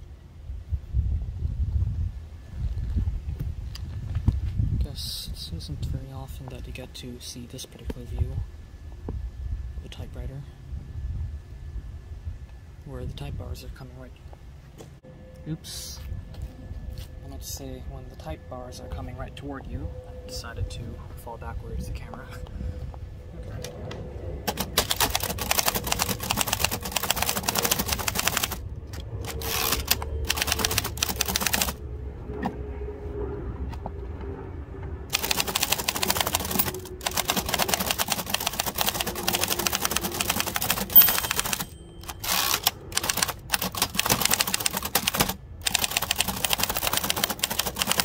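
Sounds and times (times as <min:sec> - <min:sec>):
typewriter keys clacking: 0:24.5 - 0:28.6, 0:29.3 - 0:31.8, 0:35.1 - 0:48.0
typewriter margin bell ding: 0:39.6 - 0:43.2.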